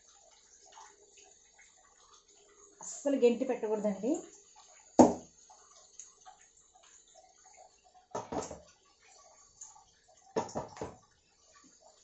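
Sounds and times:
metal pot clunking on burner: 8.1s - 8.6s, 10.4s - 11.0s.

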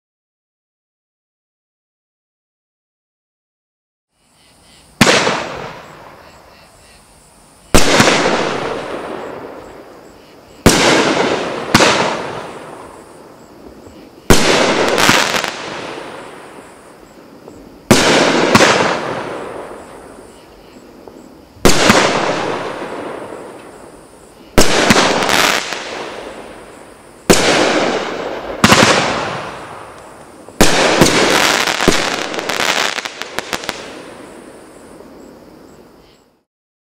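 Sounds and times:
firework bangs: 5.0s - 6.3s, 7.6s - 35.2s
firework crackle: 5.0s - 6.5s, 7.4s - 35.3s.

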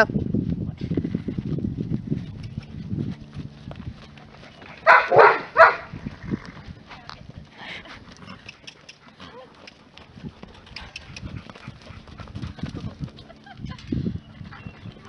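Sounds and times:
dog barking: 4.8s - 5.9s.

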